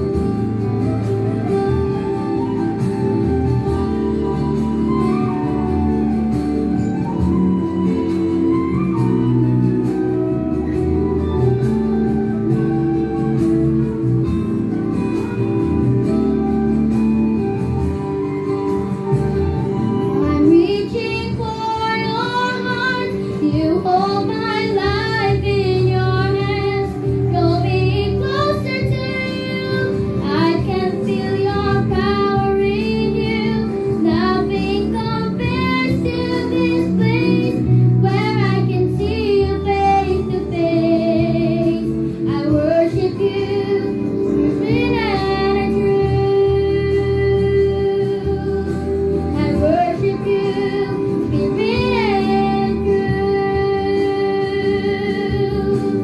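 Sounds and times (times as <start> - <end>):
instrumental accompaniment: 0.0 - 56.0
girl singing into a microphone: 20.2 - 56.0.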